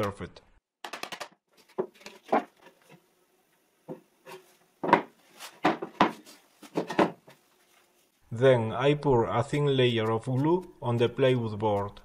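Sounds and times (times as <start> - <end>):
wooden knocks and scrapes: 3.8 - 7.4.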